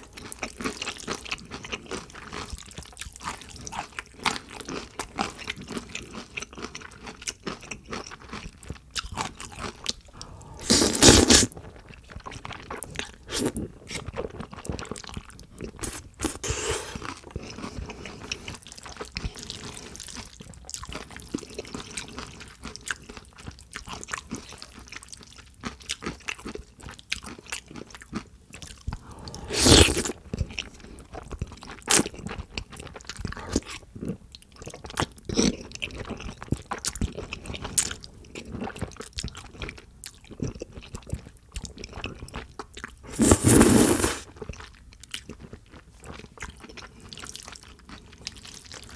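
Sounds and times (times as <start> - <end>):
wet chewing and smacking: 0.1 - 43.4, 44.2 - 48.9
slurping noodles: 10.1 - 11.6, 13.2 - 14.0, 15.8 - 17.2, 29.0 - 30.2, 43.1 - 44.3.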